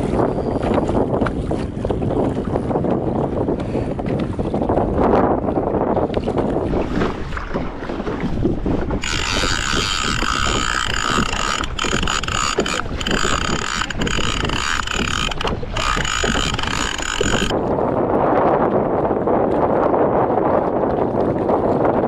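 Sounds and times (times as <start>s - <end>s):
wind buffeting microphone: 0.0s - 22.0s
fishing reel gear whir: 9.0s - 17.6s.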